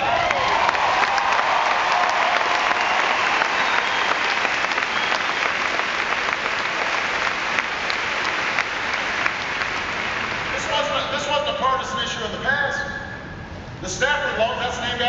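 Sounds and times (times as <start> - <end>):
crowd applauding: 0.0 - 11.1.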